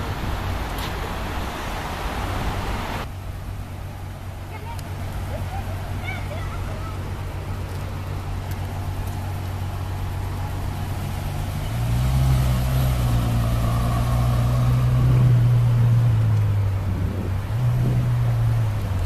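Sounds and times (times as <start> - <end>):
car engine idling: 3.1 - 11.9.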